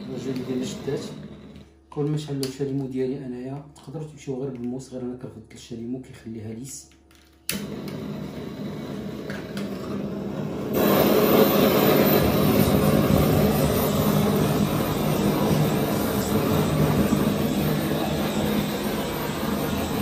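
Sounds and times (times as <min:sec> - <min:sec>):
blowtorch flame hissing: 0:00.0 - 0:01.6, 0:07.5 - 0:20.0
blowtorch lighting: 0:00.0 - 0:01.7, 0:07.5 - 0:20.0.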